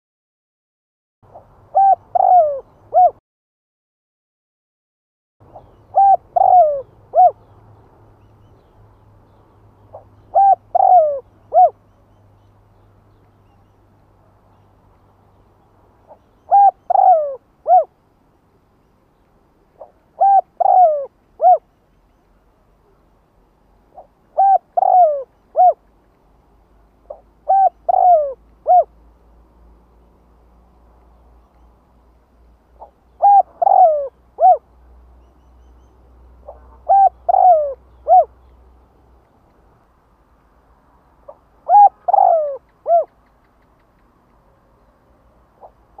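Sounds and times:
dove cooing: 1.3 - 3.2, 5.6 - 7.4, 9.9 - 11.8, 16.1 - 17.9, 19.8 - 21.7, 23.9 - 25.8, 27.1 - 28.9, 32.8 - 34.7, 36.4 - 38.3, 41.3 - 43.3, 45.6 - 46.0.

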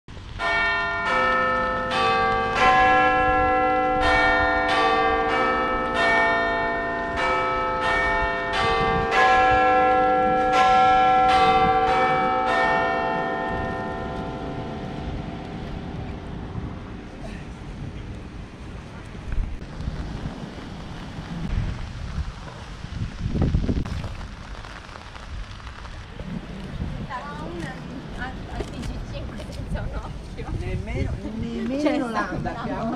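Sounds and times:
bells ringing: 0.4 - 15.4.

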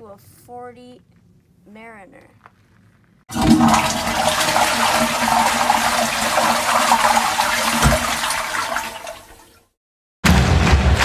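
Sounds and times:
toilet flushing: 3.3 - 9.7.

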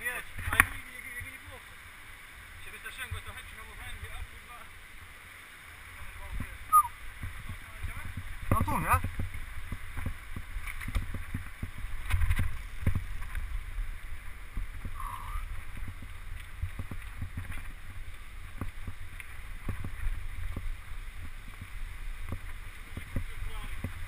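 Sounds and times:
bike tyres on dirt: 4.7 - 24.0
wind buffeting microphone: 6.1 - 24.0
brief squeak: 6.7 - 6.9
bike rattling over bumps: 7.2 - 24.0.

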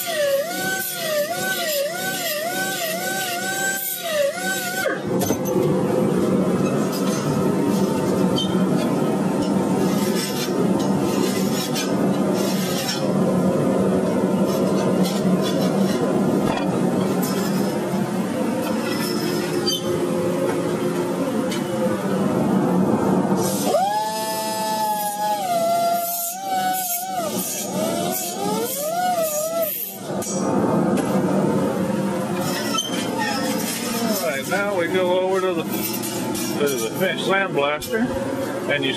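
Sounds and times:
workshop machine hum: 0.0 - 38.9
bandsaw blade scraping and clinking: 9.9 - 13.1.

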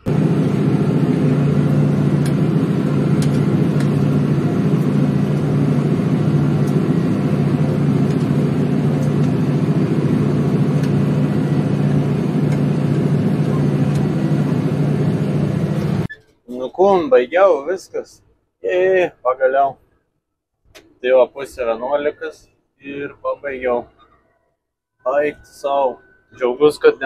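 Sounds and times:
tractor engine running: 0.0 - 17.9.

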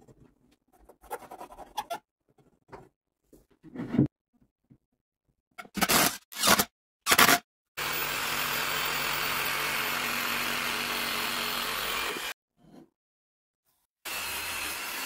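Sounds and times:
power tool running: 7.1 - 12.4, 14.1 - 15.0.

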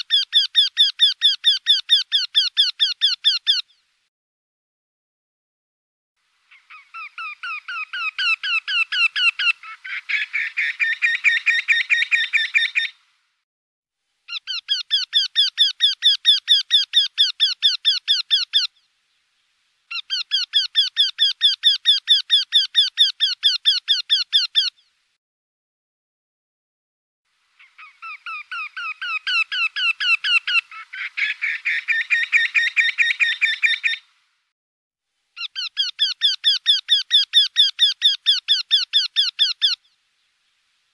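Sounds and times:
bird singing repeated calls: 0.0 - 3.8, 6.5 - 13.0, 14.3 - 18.9, 19.9 - 24.9, 27.6 - 34.1, 35.4 - 40.0
second bird calling: 6.5 - 13.0, 19.9 - 24.9, 27.6 - 34.1, 35.4 - 40.0.

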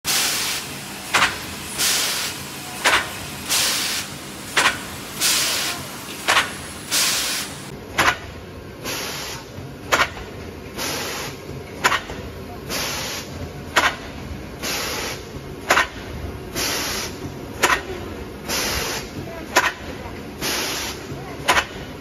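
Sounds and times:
compressed-air hiss: 0.1 - 7.7, 14.6 - 15.2, 16.6 - 17.2, 18.5 - 19.1, 20.4 - 21.0
machine clacking: 0.1 - 8.2.

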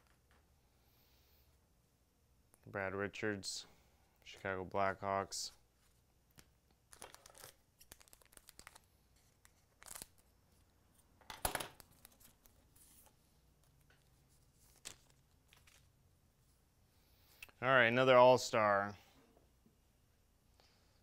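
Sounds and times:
card pack rustling and tearing: 6.9 - 10.3.

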